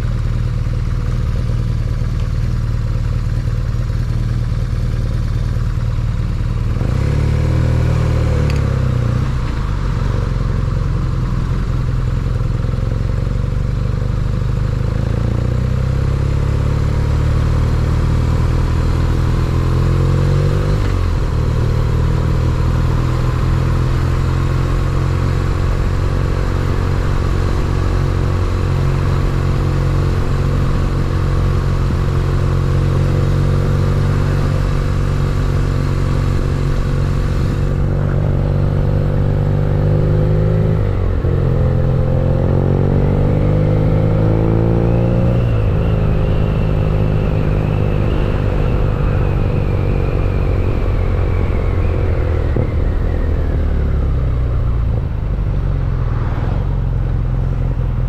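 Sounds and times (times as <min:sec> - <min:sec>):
motorcycle engine accelerating: 0:00.0 - 0:58.0
wind rush: 0:47.0 - 0:58.0.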